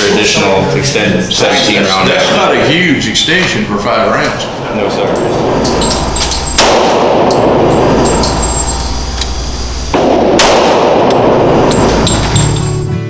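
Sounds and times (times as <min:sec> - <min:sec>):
harsh overloaded noise: 0:02.3 - 0:12.8
pistol shots: 0:06.3 - 0:08.5, 0:09.9 - 0:12.3.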